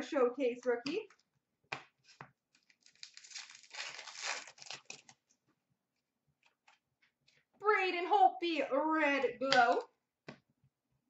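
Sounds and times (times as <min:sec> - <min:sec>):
wrapper tearing and crinkling: 0:02.5 - 0:05.2.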